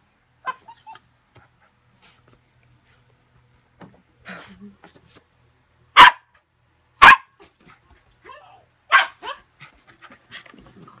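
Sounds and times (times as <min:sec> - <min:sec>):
puppy yipping: 0:00.4 - 0:01.0
puppy barking: 0:06.0 - 0:06.4, 0:07.0 - 0:07.4, 0:08.3 - 0:09.5.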